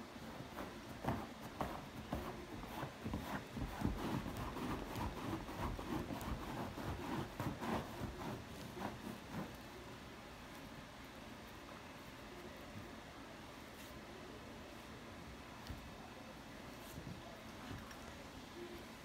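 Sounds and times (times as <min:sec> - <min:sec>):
fabric rustling and scuffing: 0:00.2 - 0:09.6.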